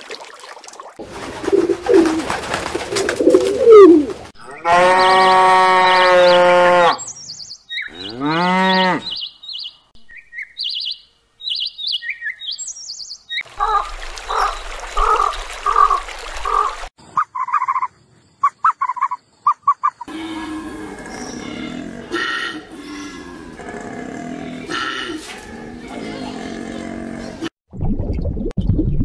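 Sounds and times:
cattle mooing: 4.5s - 7.0s, 7.9s - 9.2s, 20.1s - 27.5s
bird chirps: 7.0s - 13.5s.

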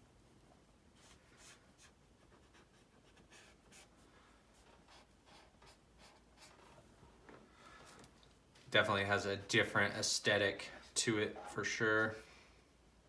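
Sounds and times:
marker scratching on paper: 1.0s - 6.8s.

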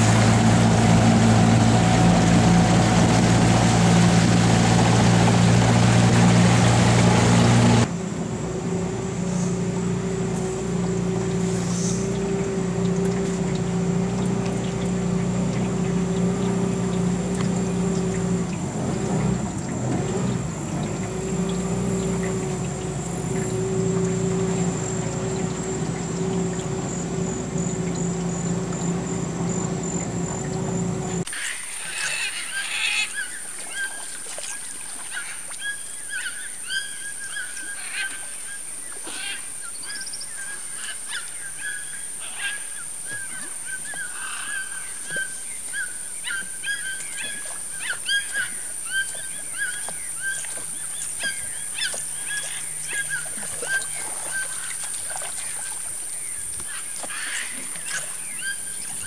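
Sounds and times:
boat motor running: 0.0s - 32.0s, 43.0s - 59.0s
short bird calls: 39.0s - 54.9s.

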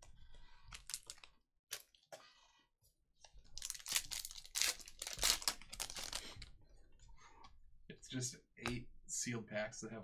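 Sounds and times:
foil wrapper crinkling and tearing: 0.7s - 1.8s, 3.5s - 6.4s.

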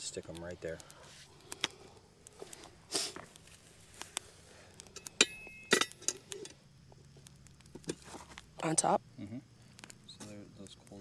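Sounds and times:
sharp metallic clinks: 4.9s - 6.6s.

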